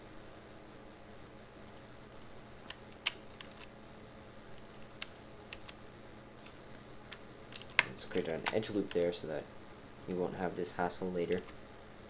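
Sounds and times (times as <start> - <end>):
keyboard keystrokes: 1.7 - 3.7, 4.6 - 5.8, 6.4 - 6.6
mouse clicks: 4.6 - 5.8.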